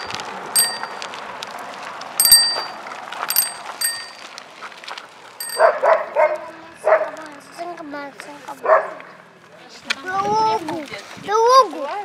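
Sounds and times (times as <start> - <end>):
bicycle bell dings: 0.0 - 1.0, 2.2 - 4.3, 5.4 - 5.8.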